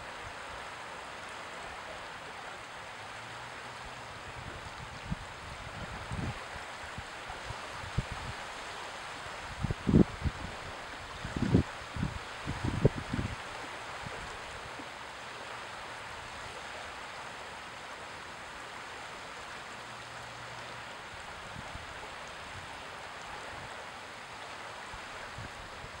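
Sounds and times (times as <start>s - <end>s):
wind: 0.0s - 26.0s
wind buffets on microphone: 4.3s - 8.4s, 9.4s - 13.4s, 25.3s - 26.0s.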